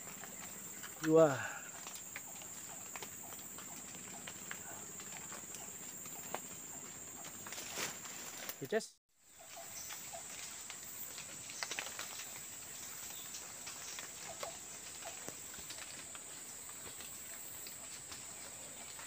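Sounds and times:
faint ticks: 0:00.1 - 0:07.6.

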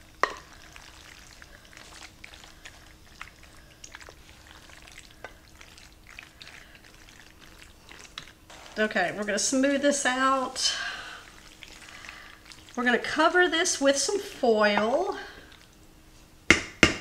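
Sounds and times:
macaroni squishing: 0:00.2 - 0:12.8
wooden spoon scraping: 0:08.2 - 0:10.7.

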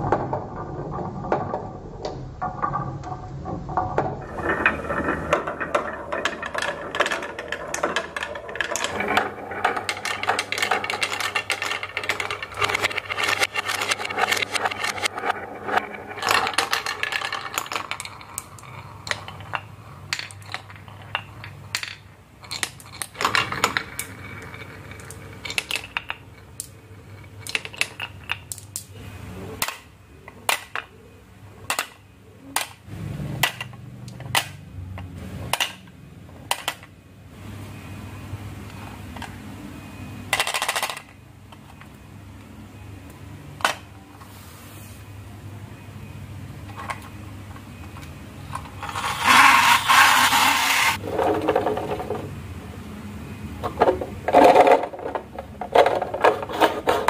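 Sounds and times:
low rolling rumble: 0:00.0 - 0:21.8
marbles clattering on a track: 0:00.0 - 0:30.9, 0:31.6 - 0:36.9, 0:40.3 - 0:42.0, 0:46.7 - 0:52.4, 0:53.6 - 0:57.0.

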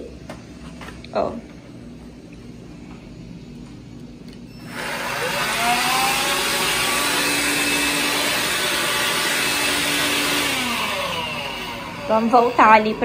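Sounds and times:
stick vacuum motor whine: 0:04.3 - 0:13.0.

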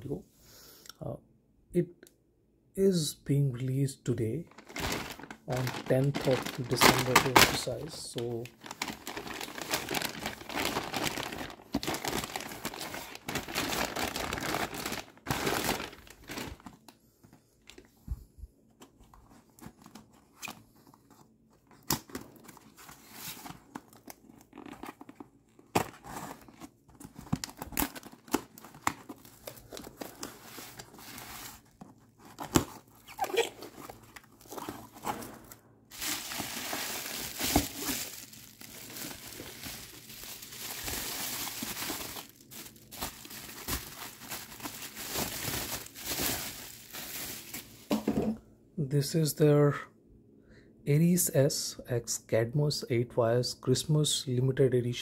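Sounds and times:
plastic mailer crinkling and tearing: 0:04.5 - 0:16.9, 0:19.2 - 0:48.1.

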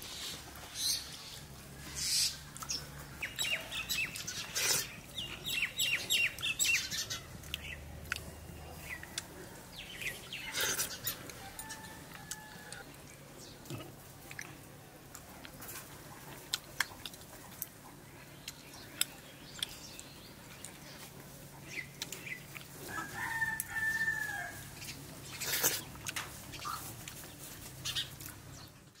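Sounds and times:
eating clicks and smacks: 0:07.4 - 0:08.3, 0:16.3 - 0:17.8, 0:18.4 - 0:20.8
rooster crowing: 0:10.4 - 0:12.8, 0:22.8 - 0:24.7.

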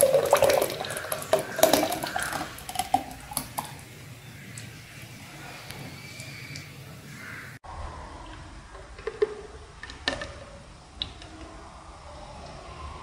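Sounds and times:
thick drink pouring and splashing: 0:00.0 - 0:04.0.

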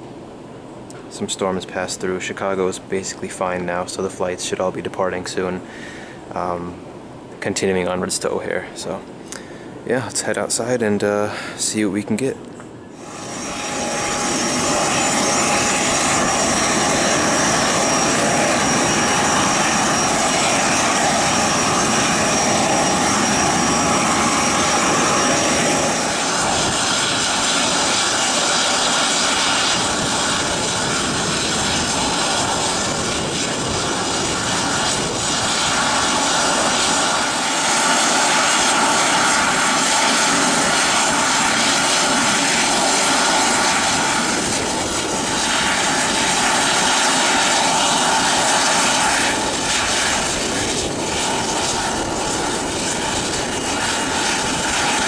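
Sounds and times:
jet turbine whine: 0:12.7 - 0:55.0.

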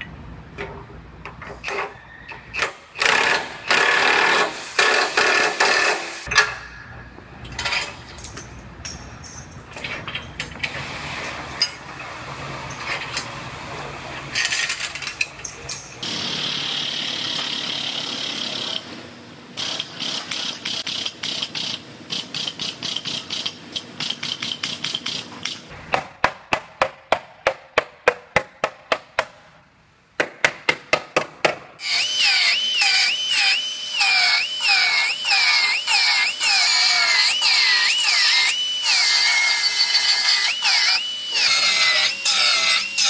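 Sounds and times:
cut-off wheel cutting steel: 0:31.8 - 0:43.0.

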